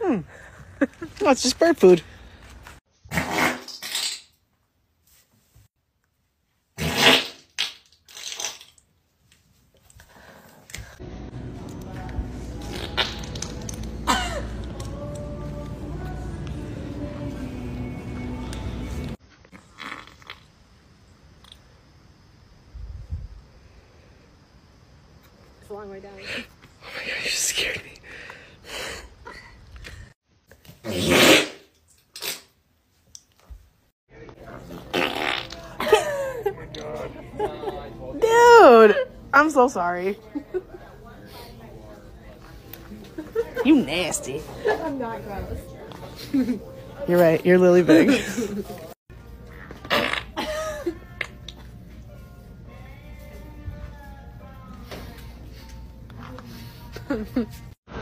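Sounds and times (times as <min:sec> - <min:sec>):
farting: 0:06.8 - 0:07.5, 0:19.6 - 0:20.5, 0:30.8 - 0:32.5, 0:34.5 - 0:35.7, 0:49.5 - 0:50.4.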